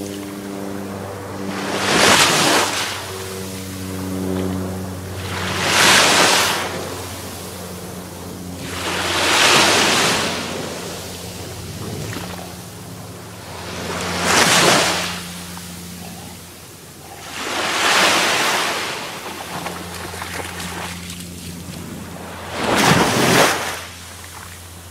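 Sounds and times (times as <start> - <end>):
waves washing onto pebbly shore: 8.6 - 10.9.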